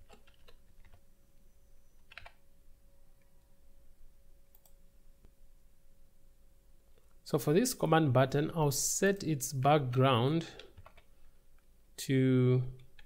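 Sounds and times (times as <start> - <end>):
keyboard keystrokes: 2.1 - 2.4.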